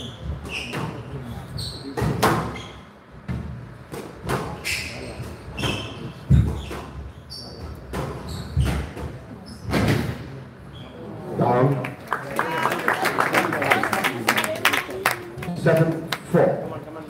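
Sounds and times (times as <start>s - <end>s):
shoes squeaking on wooden floor: 0.0s - 3.6s, 4.5s - 9.8s.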